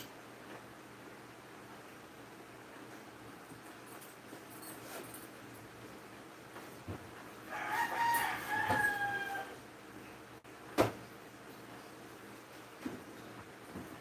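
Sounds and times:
rooster crowing: 7.4s - 9.7s.

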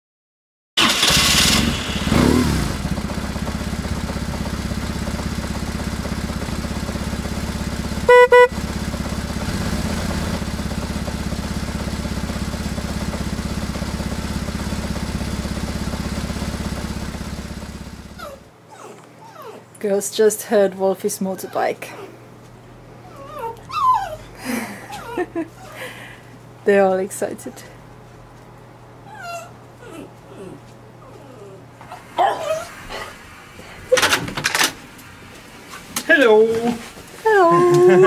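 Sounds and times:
motorcycle engine idling: 0.8s - 18.3s
horn short beeps: 8.1s - 8.6s.

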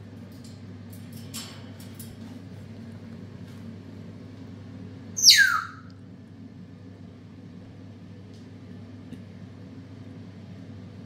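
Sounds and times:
steady low hum: 0.0s - 11.0s
parrot call falling in pitch: 5.2s - 5.9s.

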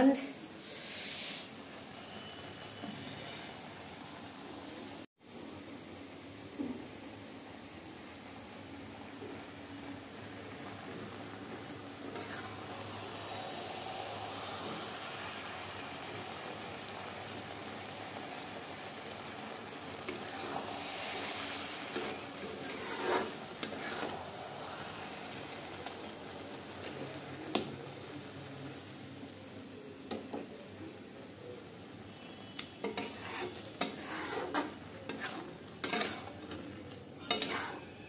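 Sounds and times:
food sizzling in oil: 0.0s - 38.0s
metal spatula scraping wok: 12.0s - 13.9s, 20.0s - 24.4s, 32.8s - 36.6s, 37.2s - 38.0s.

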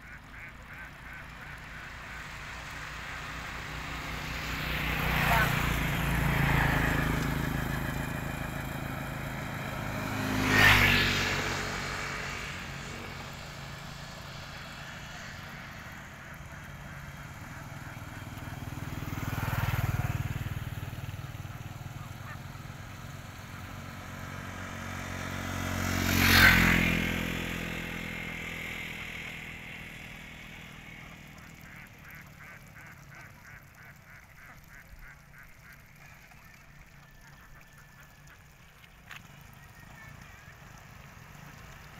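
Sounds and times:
ducks quacking: 0.0s - 8.2s, 14.3s - 18.8s, 21.5s - 22.7s, 30.6s - 41.6s
vehicles passing: 0.0s - 41.9s.

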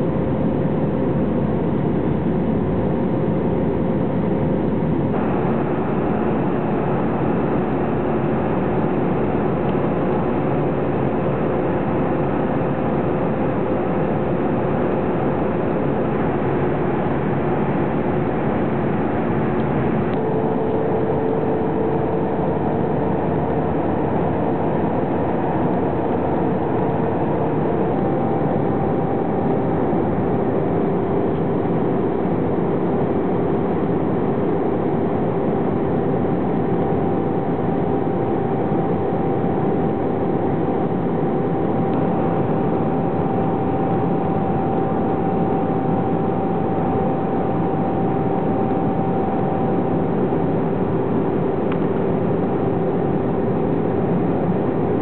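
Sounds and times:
airliner cabin noise: 1.6s - 55.0s.

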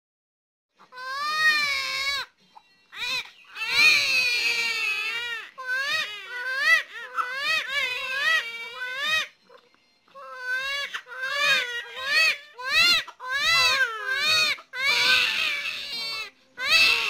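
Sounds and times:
babies crying: 0.8s - 2.3s, 2.9s - 9.3s, 10.2s - 17.0s.

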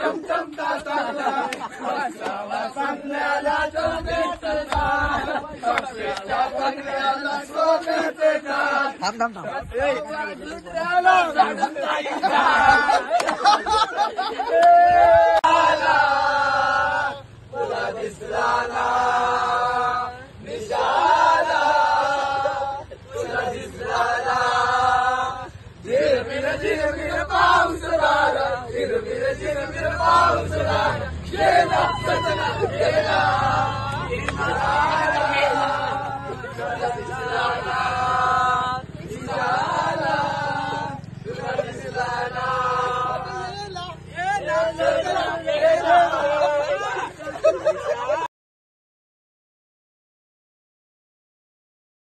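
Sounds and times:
men chanting in unison: 0.0s - 48.3s
sharp hand claps: 13.2s - 13.4s.

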